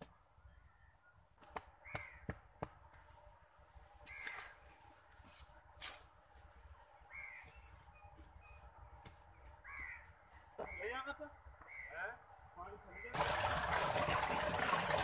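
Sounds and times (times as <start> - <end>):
crows cawing: 1.8 - 2.4, 4.0 - 4.6, 7.1 - 7.6, 9.6 - 10.9.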